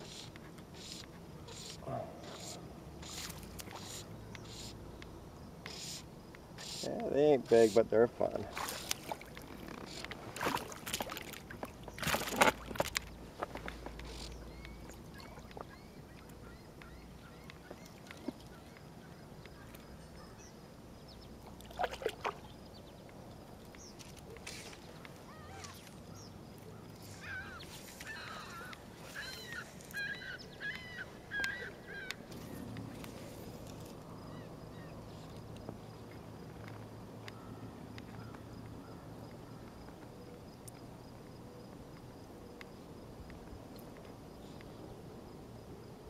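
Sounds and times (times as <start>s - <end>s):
birds calling: 0.0s - 4.8s, 13.0s - 23.1s, 23.7s - 33.1s.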